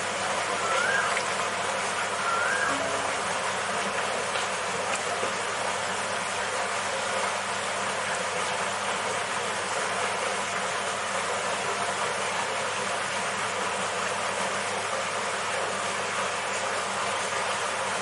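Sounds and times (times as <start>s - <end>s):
low hum: 0.4s - 4.4s.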